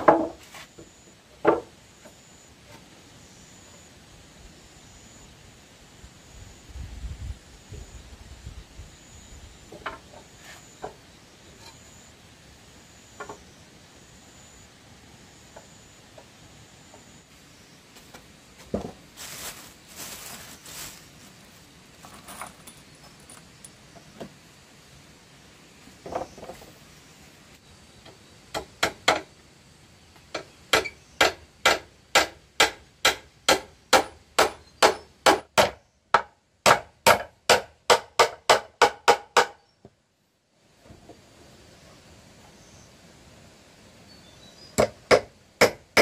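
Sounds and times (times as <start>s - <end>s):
scattered knocks and rustles: 26.0s - 26.8s.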